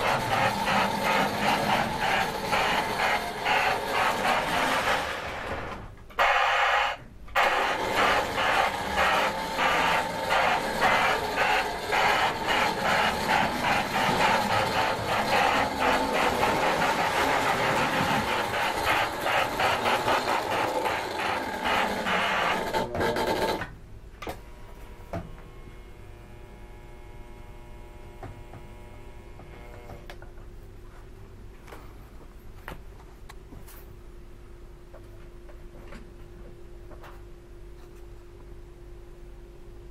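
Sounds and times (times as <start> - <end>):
simulated steam chuffing: 0.0 - 5.8, 7.4 - 22.8
faint electrical hum: 0.0 - 39.9.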